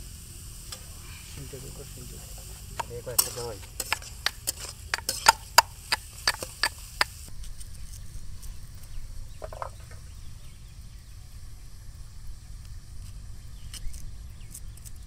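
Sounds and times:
onions sizzling in oil: 0:00.0 - 0:07.3
metal spatula clanking on pan: 0:02.4 - 0:05.7.

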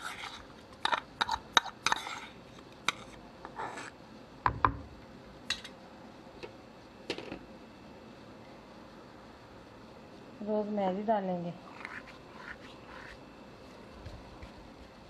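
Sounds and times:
metal spoon scraping a bowl: 0:00.0 - 0:04.0, 0:11.8 - 0:13.2.

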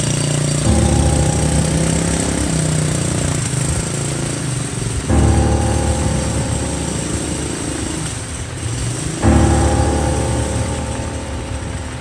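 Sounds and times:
low buzzy drone: 0:00.6 - 0:03.7, 0:05.1 - 0:08.5, 0:09.2 - 0:12.0.

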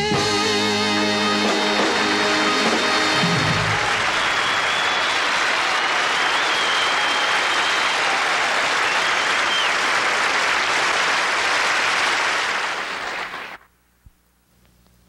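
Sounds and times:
audience applauding: 0:01.4 - 0:13.7
high whistles from crowd: 0:02.6 - 0:10.0.

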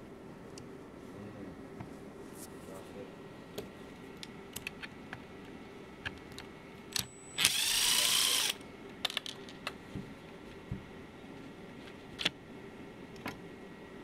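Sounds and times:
power screwdriver running: 0:07.4 - 0:08.6.

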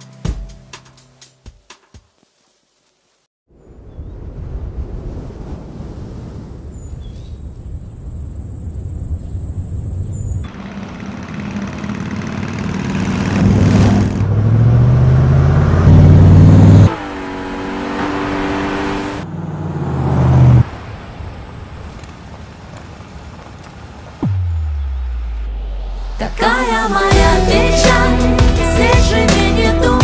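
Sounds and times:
vehicle engines revving: 0:10.4 - 0:27.6.

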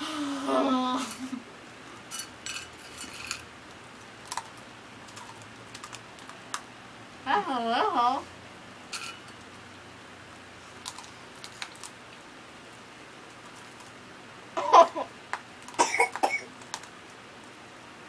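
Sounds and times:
chewing pretzels: 0:03.7 - 0:06.6, 0:10.7 - 0:12.2.

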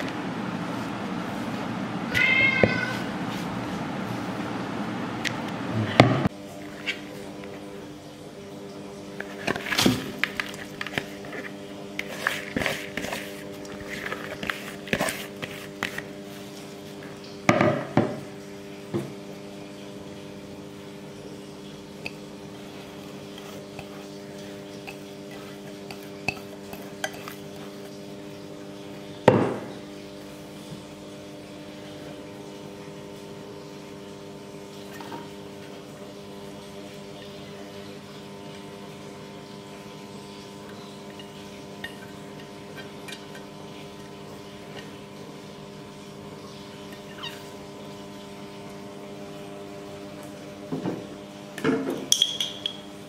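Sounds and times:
kitchenware clinking: 0:51.6 - 0:52.9.

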